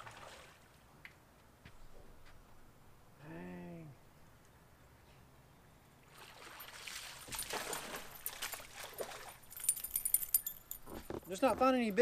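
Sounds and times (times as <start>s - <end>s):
fish splashing in water: 6.1s - 9.5s.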